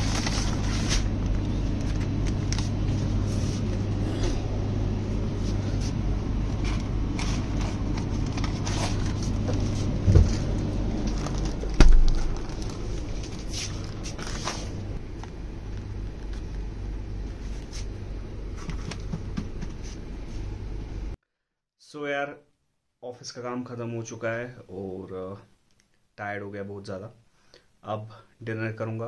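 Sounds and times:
plastic packets crackling: 0.0 - 2.9, 10.4 - 14.8
drinks cooler humming: 0.0 - 21.2.

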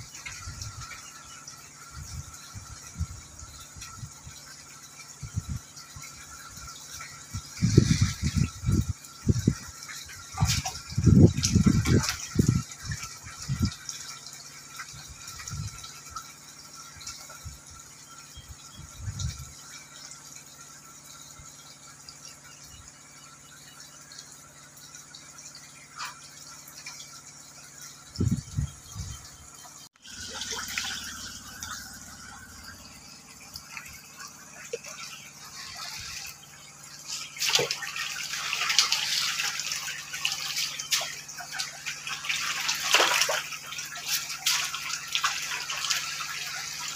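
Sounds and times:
fish splashing water: 30.0 - 46.9.

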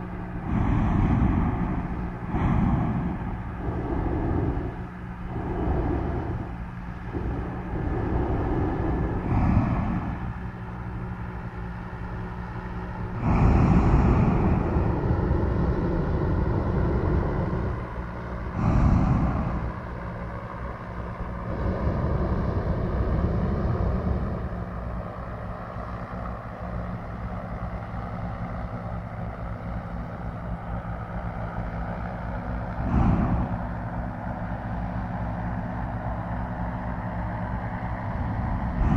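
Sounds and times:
engine and propeller droning: 0.0 - 38.9
propane burner blasts: 0.0 - 38.9.

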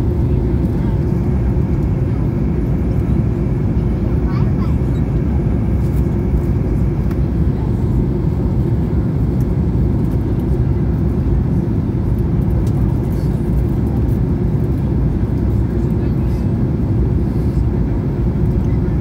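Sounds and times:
airplane cabin engine rumble: 0.0 - 19.0.

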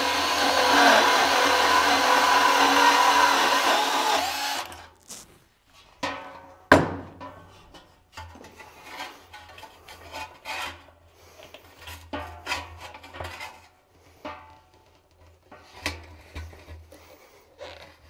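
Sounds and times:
rubber scraping against steel: 4.5 - 5.9.

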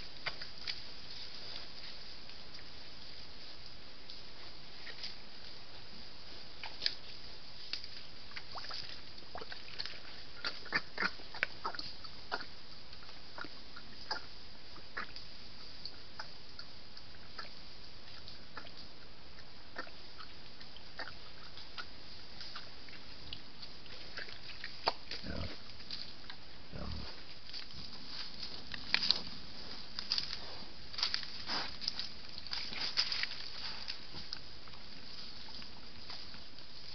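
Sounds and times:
rustling in dry leaves: 21.3 - 36.9
boar grunt: 25.2 - 25.6, 26.7 - 27.2.

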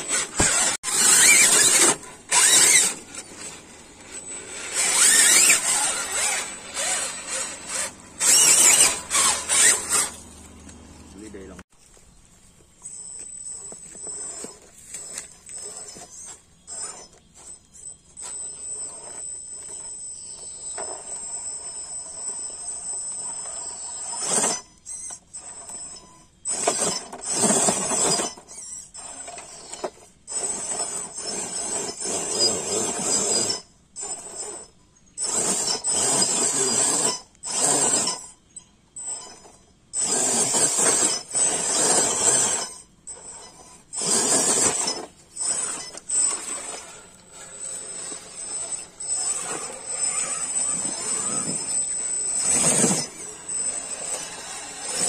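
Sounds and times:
tyres scraping on stone: 0.0 - 12.0, 13.1 - 21.4, 39.4 - 55.0
electric motor and gearbox whirring: 0.0 - 55.0.

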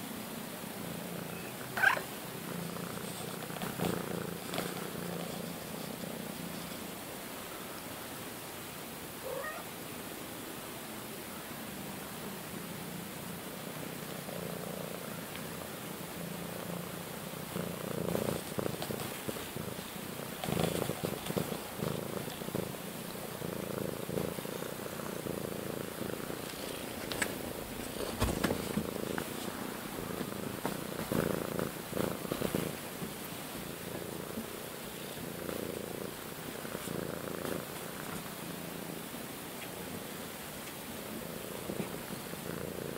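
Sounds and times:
cat purring: 0.0 - 7.6, 9.2 - 9.7, 11.7 - 42.9
knocks and rustles against camera: 27.0 - 29.5.

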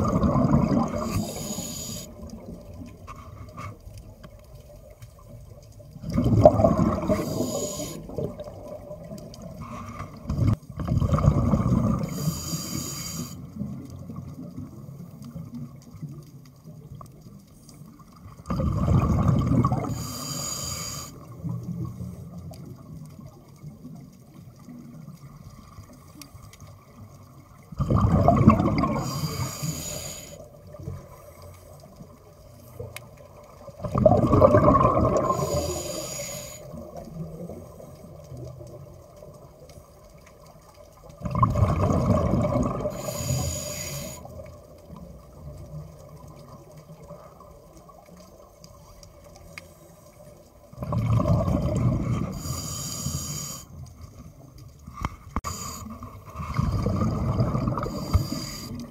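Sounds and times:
scuba regulator breathing underwater: 0.0 - 2.4, 6.1 - 8.4, 11.4 - 13.6, 18.6 - 21.4, 27.8 - 31.6, 34.0 - 37.0, 41.6 - 44.4, 51.2 - 53.9, 55.0 - 58.9
exhaled bubbles gushing: 0.0 - 2.9, 5.9 - 12.4, 18.2 - 20.1, 26.9 - 29.5, 33.2 - 36.1, 41.1 - 43.5, 50.7 - 52.6, 55.9 - 58.9.

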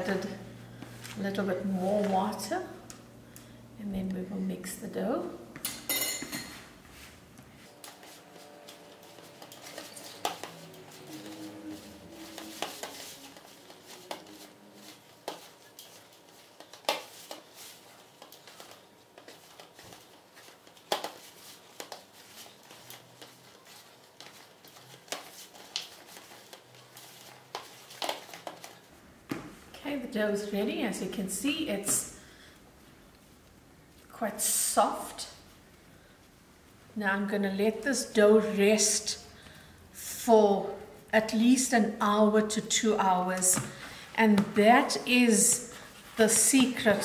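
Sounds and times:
hands kneading dough: 6.5 - 29.9.

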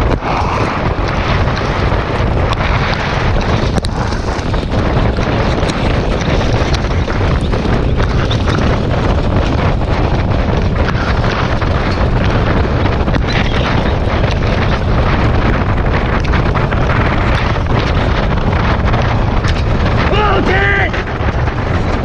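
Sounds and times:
sharp clicks and rattles: 0.0 - 22.0
wind buffeting microphone: 0.0 - 22.0.

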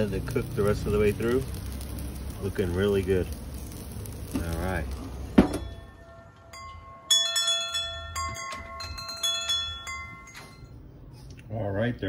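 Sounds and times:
metal tube wind chime ringing: 5.5 - 10.8.

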